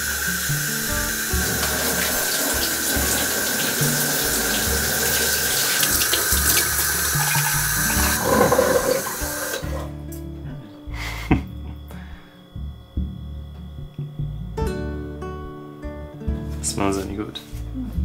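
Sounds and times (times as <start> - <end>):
tap running into sink: 1.1 - 9.9.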